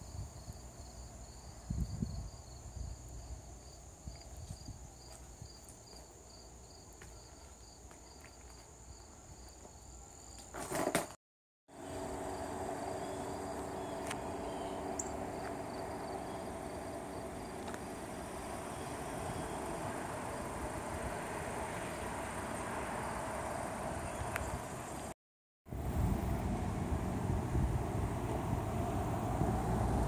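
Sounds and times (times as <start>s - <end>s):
insects chirping: 0.0s - 10.6s, 11.7s - 25.1s
outdoor background noise: 0.0s - 30.0s.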